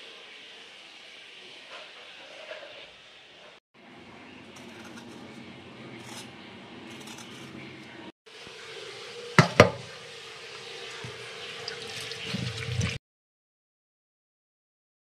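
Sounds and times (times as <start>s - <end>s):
tap water running into a bowl: 8.4s - 13.0s.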